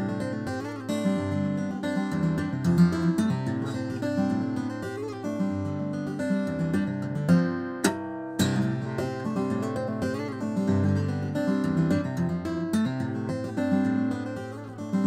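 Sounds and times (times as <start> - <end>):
acoustic guitar tapping notes: 7.3 - 10.3.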